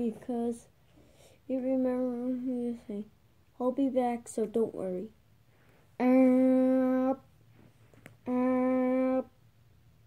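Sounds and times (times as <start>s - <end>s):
person humming: 8.2s - 9.3s.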